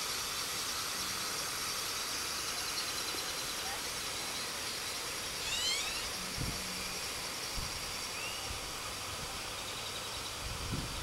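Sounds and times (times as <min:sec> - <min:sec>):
steady hiss: 0:00.0 - 0:11.0
bird chirping: 0:04.4 - 0:06.1, 0:08.1 - 0:08.5.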